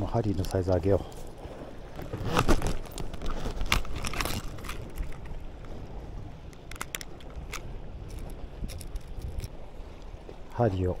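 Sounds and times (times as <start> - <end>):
wind and sea rumble: 0.0 - 11.0.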